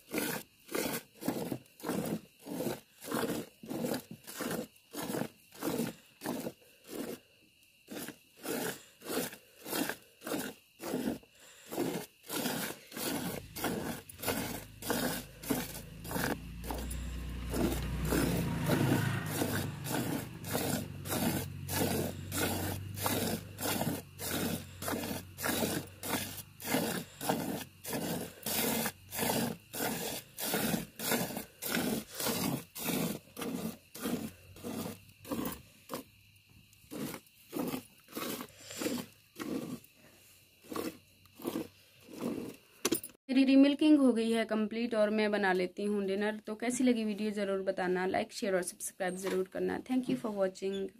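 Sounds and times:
milk squirting into a pail: 0:00.0 - 0:07.2, 0:07.9 - 0:36.1, 0:36.8 - 0:39.9.

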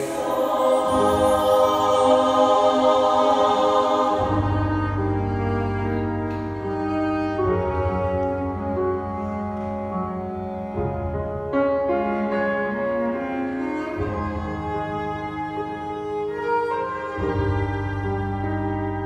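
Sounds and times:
choir holding a chord: 0:00.0 - 0:06.8
cello sustained low notes: 0:00.0 - 0:19.0.

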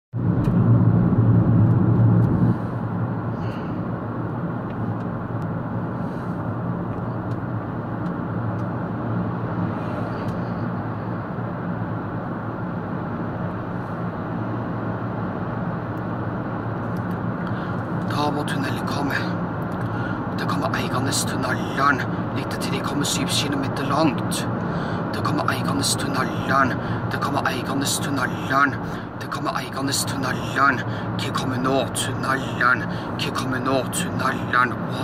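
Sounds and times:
car interior road noise: 0:00.2 - 0:35.0.

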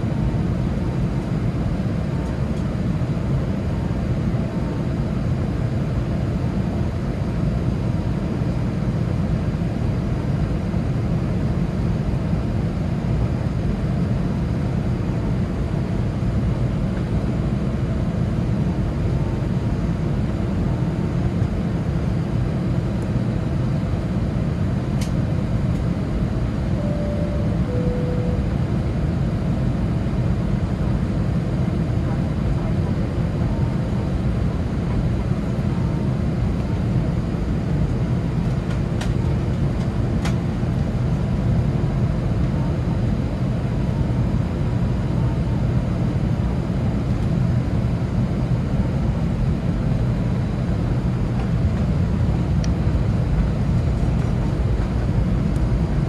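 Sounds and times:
two-note cabin tone: 0:26.7 - 0:28.9.

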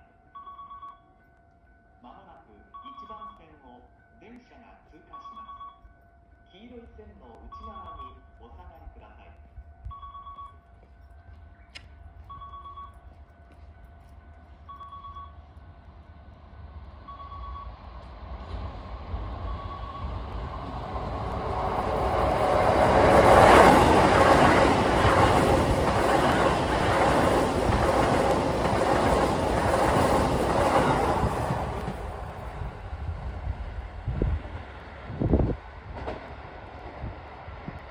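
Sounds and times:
two-pitched tone: 0:05.1 - 0:05.8, 0:19.5 - 0:20.2
electric train passing: 0:05.9 - 0:37.9.

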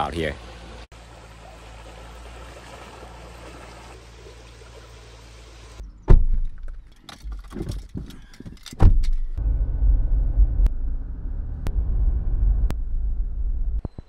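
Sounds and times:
car door thumping shut: 0:06.1 - 0:06.7, 0:08.8 - 0:09.2
knocks and rustling in car: 0:06.1 - 0:09.4.

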